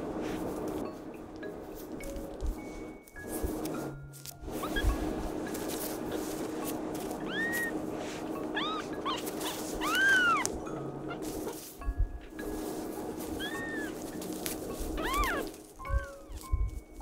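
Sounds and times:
kitten mewing: 0:07.2 - 0:07.8, 0:08.5 - 0:10.5, 0:15.0 - 0:15.5.

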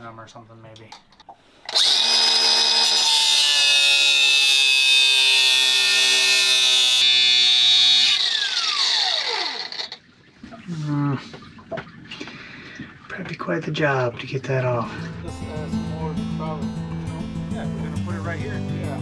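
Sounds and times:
angle grinder whining: 0:01.7 - 0:10.0.

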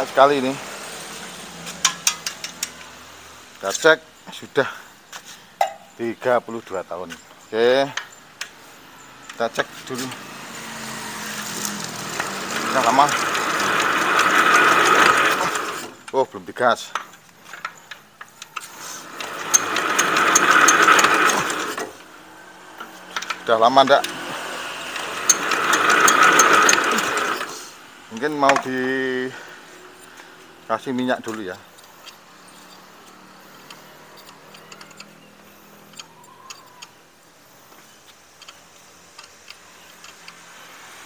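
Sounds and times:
diesel engine cranking clatter: 0:00.0 - 0:04.3, 0:06.8 - 0:16.3, 0:16.9 - 0:37.1
metallic clicks and scrapes: 0:01.6 - 0:03.0, 0:29.9 - 0:37.0, 0:37.8 - 0:41.0.

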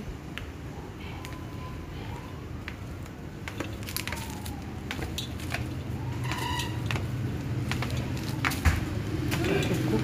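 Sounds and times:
footsteps on stairs: 0:02.6 - 0:09.6.

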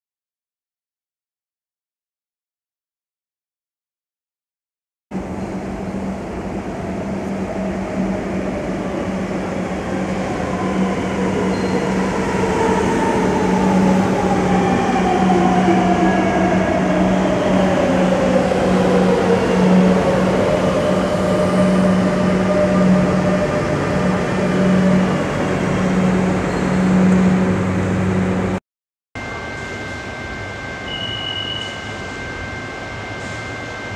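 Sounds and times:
metro train braking rumble: 0:05.2 - 0:28.6, 0:29.2 - 0:33.9.

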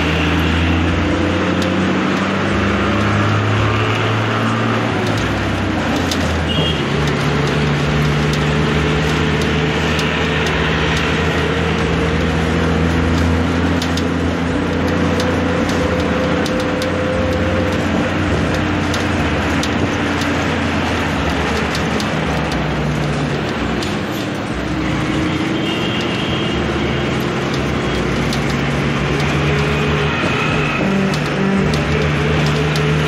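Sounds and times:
bus engine: 0:00.0 - 0:33.0
road noise: 0:00.0 - 0:33.0.

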